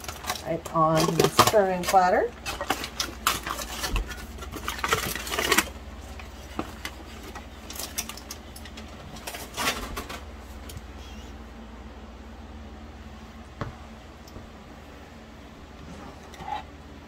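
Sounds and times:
aluminium foil crinkling: 0:00.0 - 0:10.8
steady low hum: 0:00.0 - 0:17.0.

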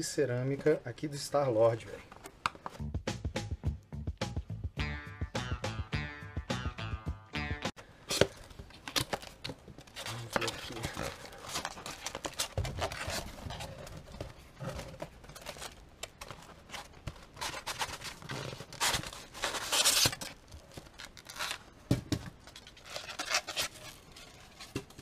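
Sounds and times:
paper and cardboard rustling: 0:08.1 - 0:25.0.

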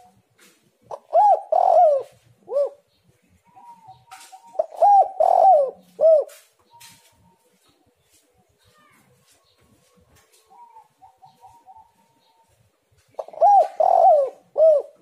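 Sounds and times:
dove cooing: 0:00.9 - 0:07.1, 0:10.5 - 0:12.6, 0:13.2 - 0:15.0.

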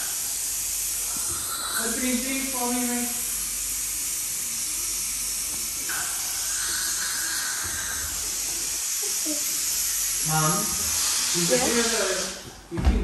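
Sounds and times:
suction airy hiss: 0:00.0 - 0:12.7.

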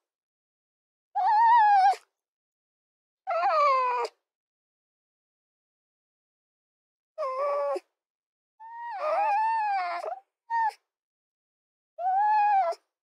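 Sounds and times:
fox cries: 0:01.2 - 0:02.0, 0:08.7 - 0:10.8, 0:12.0 - 0:12.8.

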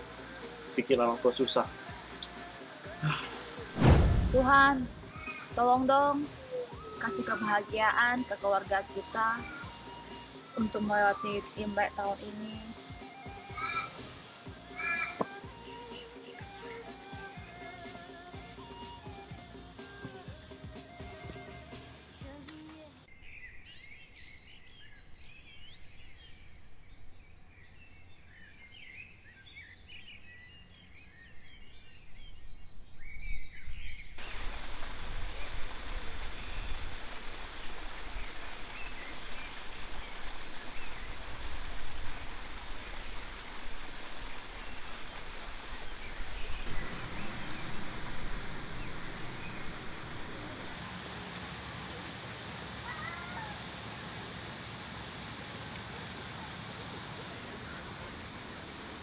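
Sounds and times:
waterfall splashing over rocks: 0:01.4 - 0:17.6, 0:34.2 - 0:59.0
birds chirping: 0:02.2 - 0:17.8, 0:22.0 - 0:51.1.

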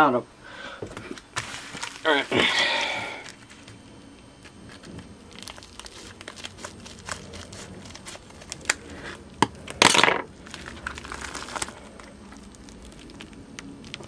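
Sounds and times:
paper envelope crinkling: 0:01.2 - 0:02.4, 0:04.4 - 0:14.0.

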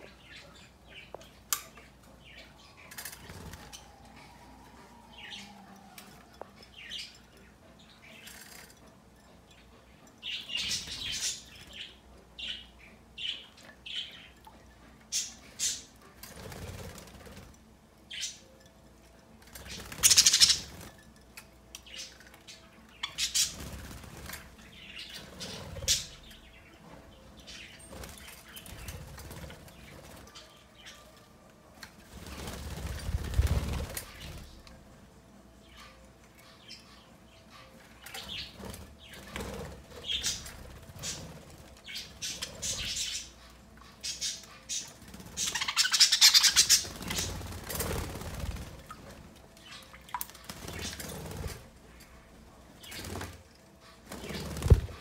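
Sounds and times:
birds flapping wings in water: 0:32.0 - 0:34.5, 0:45.0 - 0:51.7, 0:52.8 - 0:55.0.

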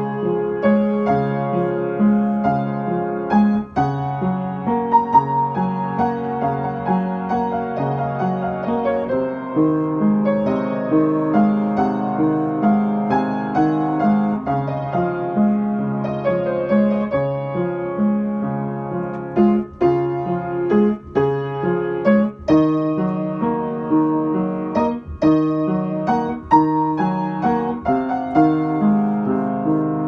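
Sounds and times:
piano music: 0:00.0 - 0:30.0.

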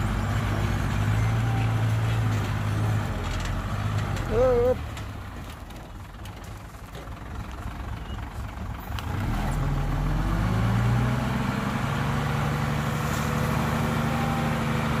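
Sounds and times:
dump truck diesel engine running: 0:00.0 - 0:15.0.

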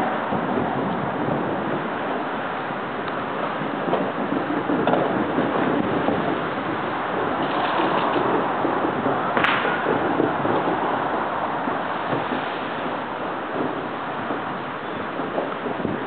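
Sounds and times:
firecrackers crackling: 0:00.0 - 0:16.0
sharp firecracker crack: 0:07.1 - 0:16.0.

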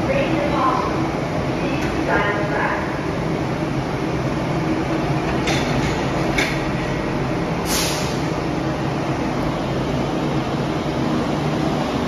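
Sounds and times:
pneumatic hisses: 0:07.6 - 0:08.3.

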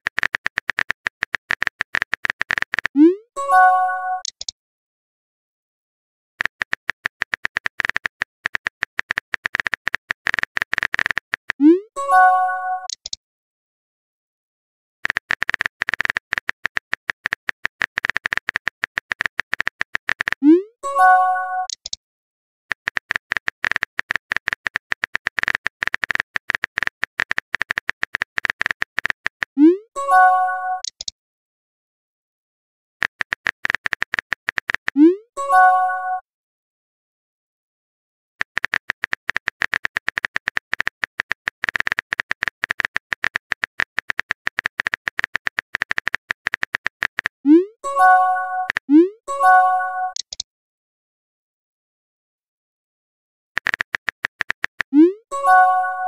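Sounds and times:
phone keyboard clicks: 0:00.0 - 0:03.0, 0:06.4 - 0:11.6, 0:15.0 - 0:20.4, 0:22.7 - 0:29.6, 0:30.8 - 0:31.1, 0:33.0 - 0:35.0, 0:38.4 - 0:47.4, 0:50.1 - 0:50.4, 0:53.6 - 0:55.0.

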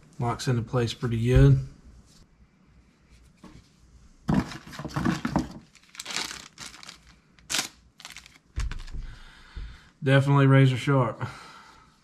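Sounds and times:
plastic bag crinkling and ripping: 0:04.4 - 0:09.0.

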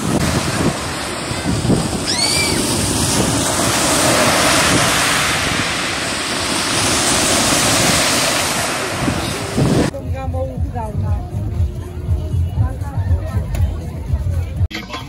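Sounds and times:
waves washing up pebble beach: 0:00.0 - 0:09.9.

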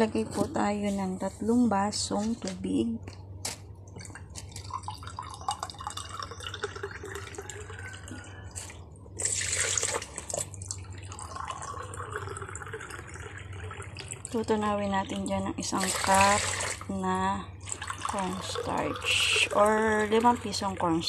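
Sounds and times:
water pouring into metal pot: 0:04.6 - 0:08.2, 0:09.2 - 0:10.1, 0:10.7 - 0:14.4.

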